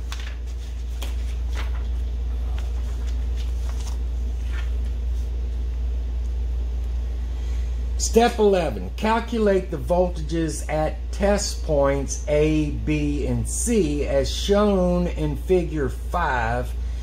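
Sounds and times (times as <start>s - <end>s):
paper and wires rustling: 0.0s - 5.4s.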